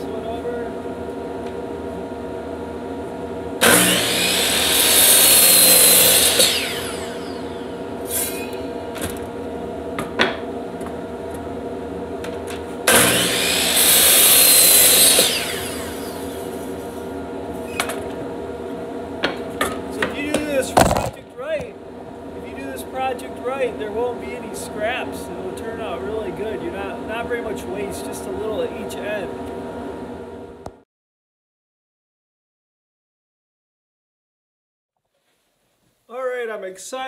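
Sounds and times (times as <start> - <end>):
steady background hum: 0.0 - 30.8
saw blade winding down: 3.6 - 8.8, 12.9 - 16.7
miter saw cutting wood: 3.6 - 8.9, 12.8 - 17.0.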